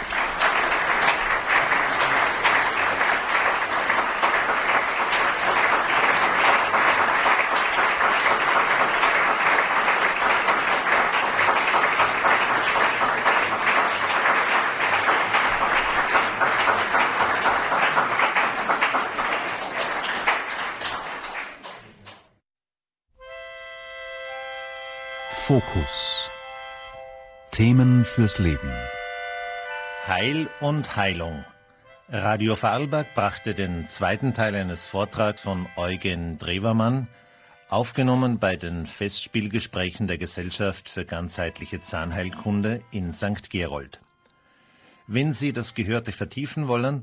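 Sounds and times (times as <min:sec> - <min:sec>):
audience applauding: 0:00.0 - 0:22.4.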